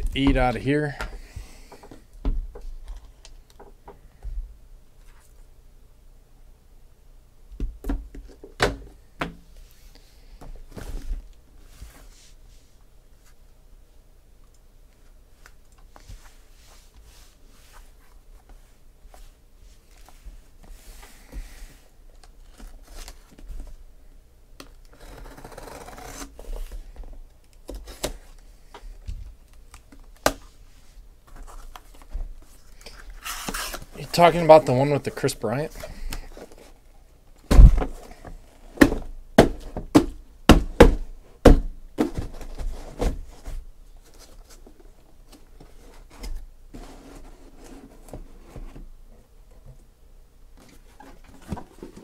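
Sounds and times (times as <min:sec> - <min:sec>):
cardboard scraping: 0:24.9 - 0:26.8, 0:31.3 - 0:34.7, 0:45.6 - 0:48.9.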